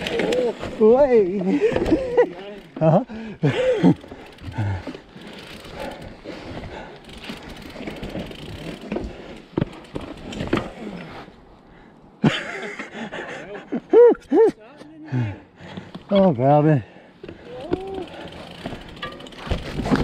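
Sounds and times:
bike rattling over rocks: 0:00.0 - 0:11.2, 0:17.2 - 0:20.0
bike tyre noise on dirt: 0:00.0 - 0:11.9, 0:17.2 - 0:20.0.

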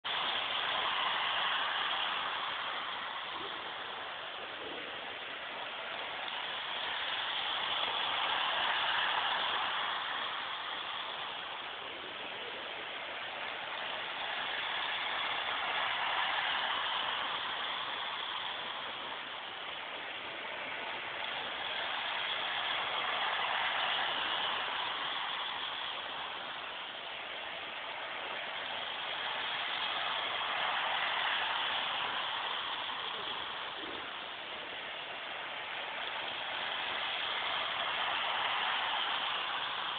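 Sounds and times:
model train rattling on track: 0:00.1 - 0:04.0, 0:05.8 - 0:12.5, 0:13.8 - 0:19.5, 0:20.4 - 0:26.7.

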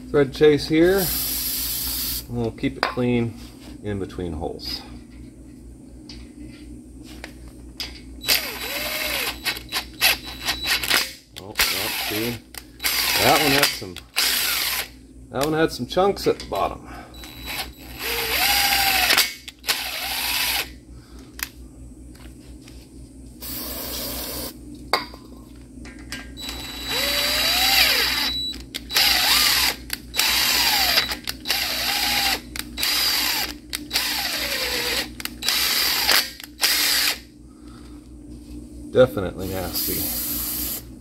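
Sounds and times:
cordless drill whirring: 0:08.2 - 0:10.9, 0:11.6 - 0:13.6, 0:14.2 - 0:14.9, 0:17.2 - 0:20.7, 0:26.4 - 0:37.2.

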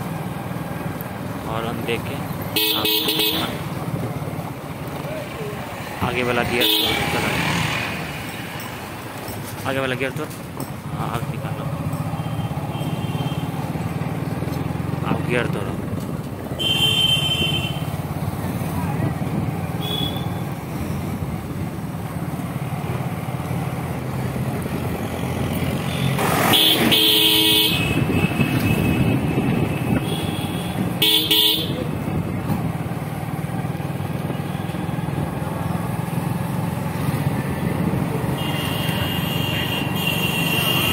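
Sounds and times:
vehicle horn honking: 0:02.6 - 0:03.6, 0:16.6 - 0:17.9, 0:19.8 - 0:20.4, 0:25.9 - 0:29.2, 0:30.0 - 0:31.8, 0:38.3 - 0:40.9.

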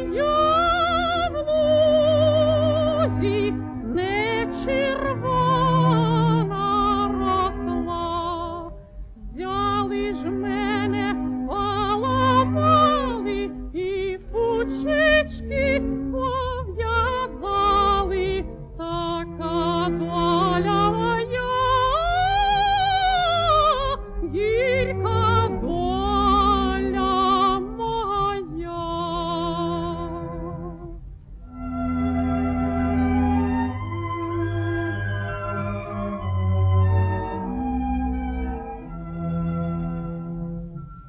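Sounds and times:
woman singing with vibrato: 0:00.0 - 0:30.9
sustained low accompaniment: 0:00.0 - 0:41.0.

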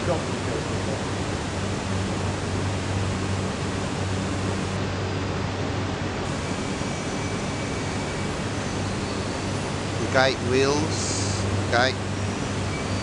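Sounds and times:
low machinery hum: 0:00.0 - 0:13.0
machinery hiss: 0:06.3 - 0:13.0.

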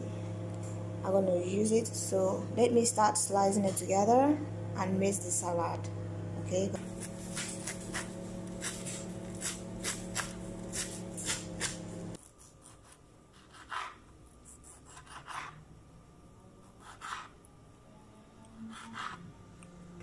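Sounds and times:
steady background hum: 0:00.0 - 0:20.0
knife chopping on cutting board: 0:06.8 - 0:11.9
knife cutting tomatoes: 0:06.8 - 0:15.6, 0:16.6 - 0:17.4, 0:18.7 - 0:19.3.

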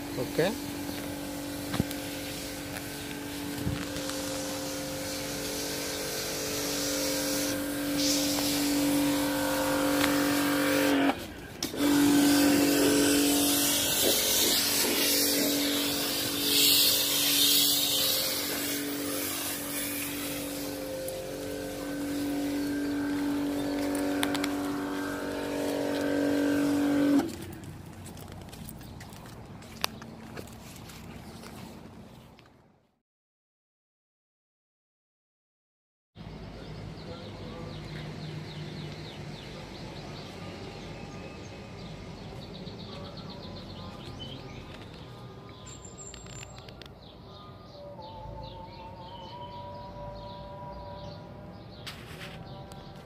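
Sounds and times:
pressure washer motor hum: 0:00.0 - 0:27.7
water jet hissing: 0:01.2 - 0:11.1, 0:11.7 - 0:27.4.

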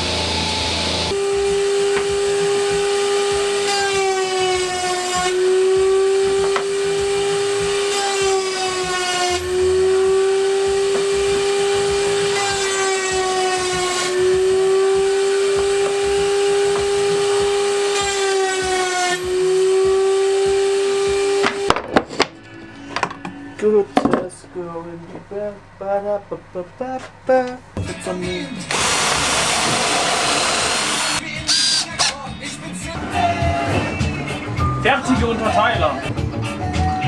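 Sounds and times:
router high whine: 0:00.0 - 0:21.7, 0:28.7 - 0:32.1.

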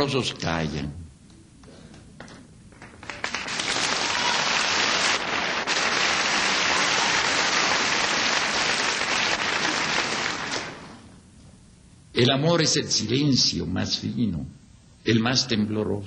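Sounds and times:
large audience applauding: 0:02.8 - 0:11.0.

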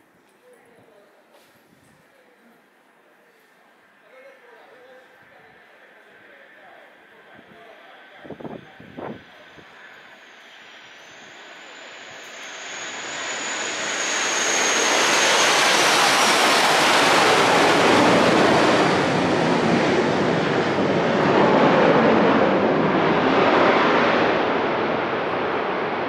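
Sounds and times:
thin high whine: 0:06.1 - 0:19.6
train passing: 0:06.7 - 0:25.9.

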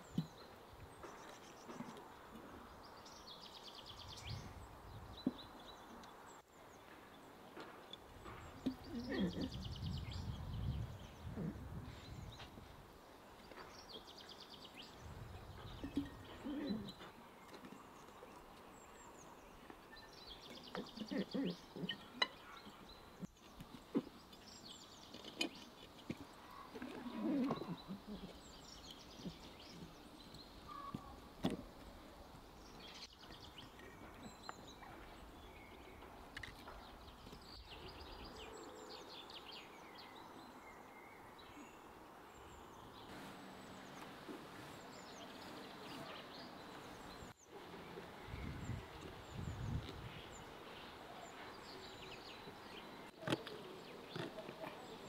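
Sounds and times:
birds chirping: 0:00.0 - 0:55.0.

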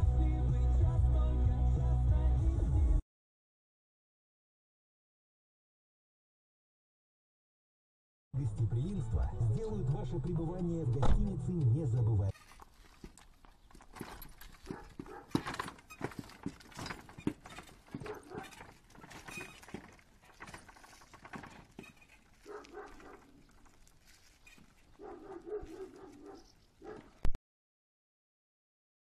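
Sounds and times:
horse hooves on pavement: 0:12.6 - 0:27.2.

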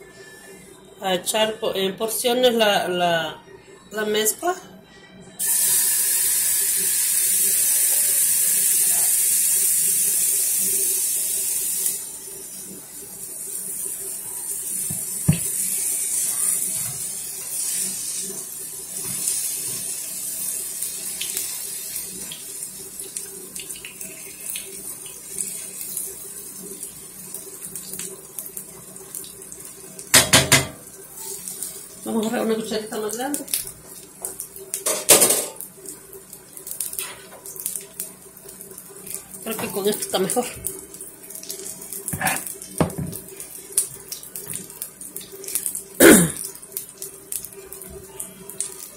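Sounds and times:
batter sizzling in hot oil: 0:05.4 - 0:48.9.

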